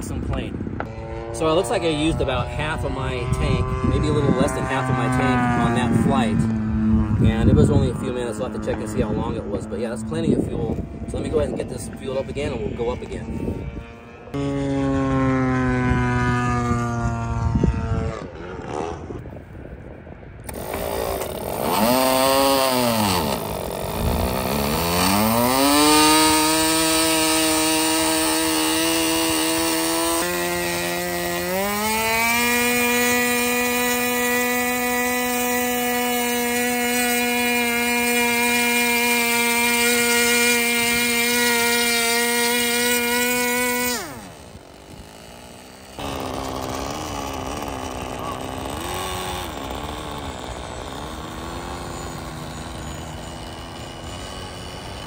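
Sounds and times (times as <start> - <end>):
model plane engine running: 0.0 - 19.2, 20.4 - 55.0
electric starter: 20.4 - 55.0.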